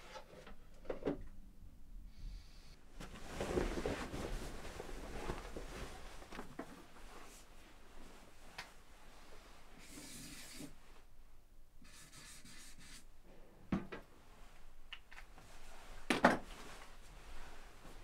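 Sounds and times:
marker scratching on wall: 11.8 - 13.0.

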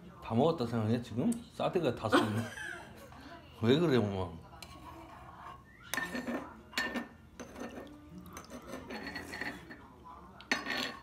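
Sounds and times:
utensils clinking on dishes: 4.6 - 11.0.

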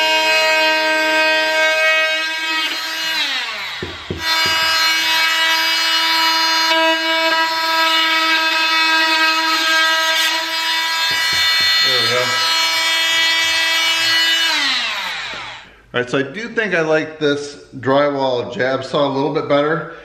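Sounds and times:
oscillating tool buzzing whine: 0.0 - 15.7
short knocks: 3.8 - 4.8, 11.0 - 12.4.

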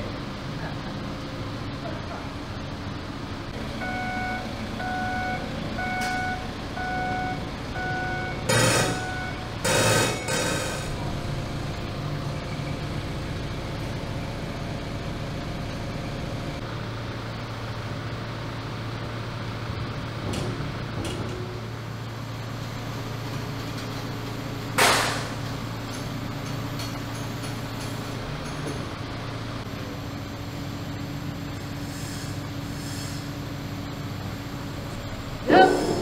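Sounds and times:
forklift humming: 0.0 - 36.0
loud short sharp noise: 24.8 - 25.4.

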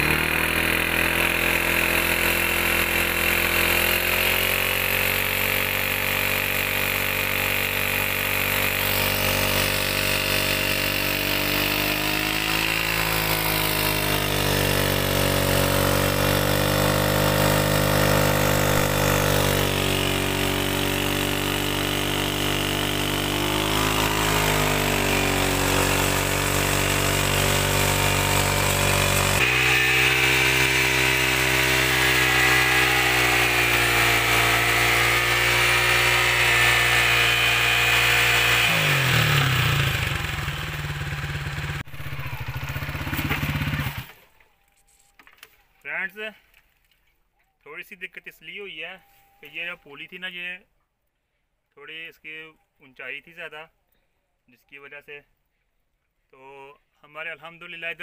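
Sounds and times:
motorcycle engine running: 0.0 - 44.2.

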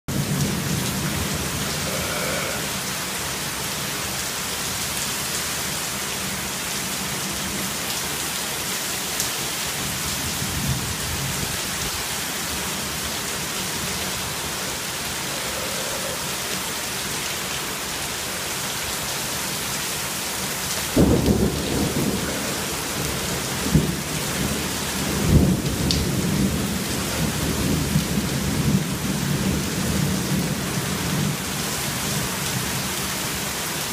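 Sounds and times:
heavy rain pouring: 0.1 - 33.9
thunder rumbling: 21.0 - 26.6.

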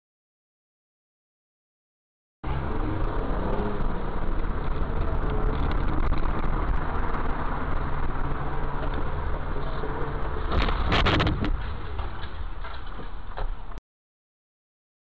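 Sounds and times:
car engine low rumble: 2.4 - 13.8
road noise: 2.4 - 13.8.

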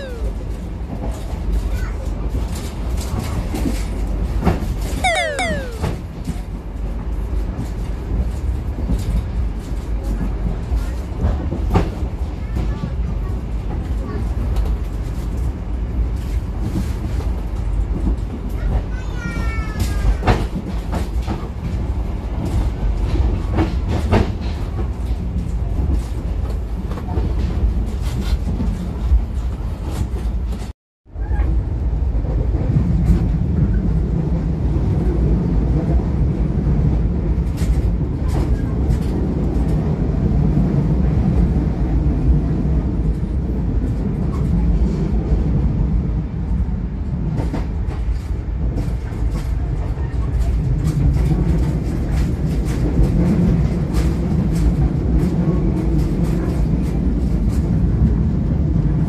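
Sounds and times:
falling squeal: 0.0 - 0.4, 5.0 - 6.0
train rumble: 0.0 - 59.0.

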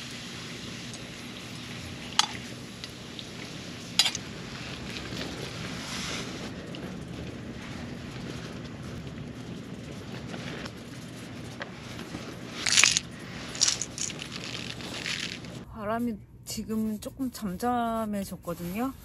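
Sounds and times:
steady hiss: 0.0 - 15.6.

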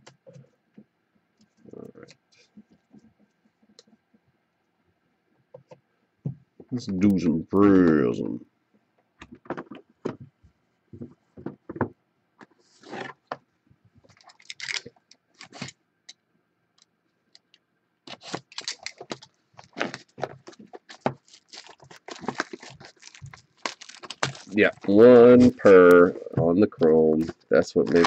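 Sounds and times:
rustling and clattering: 9.2 - 15.7, 18.1 - 25.0.

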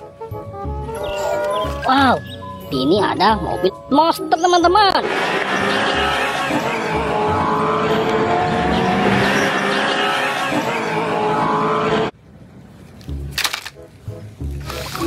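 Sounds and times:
monster truck engine revving: 4.9 - 12.2.

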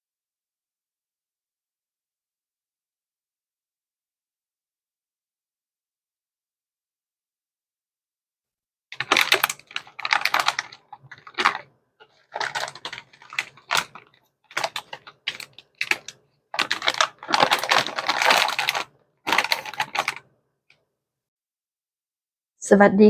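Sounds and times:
plastic bags rustling and crackling: 8.9 - 20.3.

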